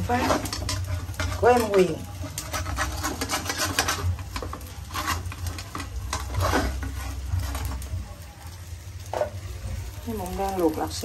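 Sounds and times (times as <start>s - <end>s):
metal tongs clicking and scraping pan: 0.0s - 7.9s, 9.0s - 9.5s
fish frying in sizzling oil: 0.0s - 11.0s.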